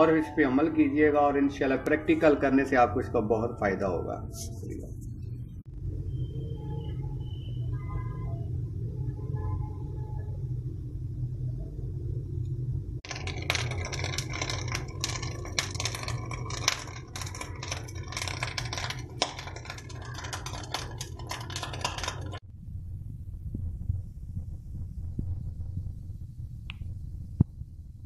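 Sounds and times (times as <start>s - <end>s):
low rumble: 4.2s - 28.0s.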